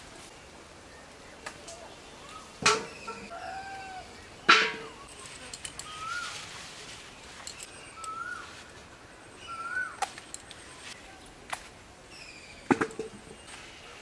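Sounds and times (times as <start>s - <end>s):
leaves rustling: 0.0s - 14.0s
sharp snaps of picking vegetables: 11.5s - 11.7s.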